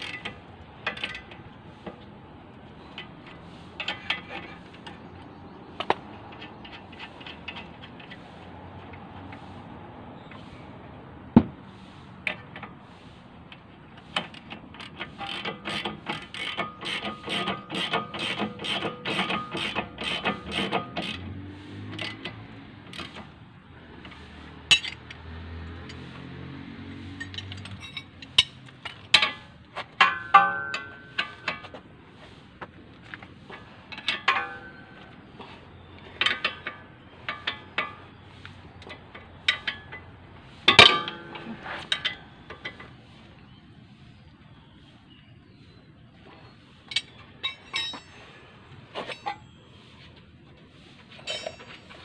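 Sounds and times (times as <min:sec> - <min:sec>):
wrench ratcheting: 0:14.2 - 0:21.2
steel tools clinking on metal: 0:24.6 - 0:26.1, 0:27.1 - 0:31.7, 0:33.9 - 0:35.0, 0:36.0 - 0:40.1, 0:40.7 - 0:42.9, 0:46.9 - 0:49.6, 0:51.2 - 0:52.0.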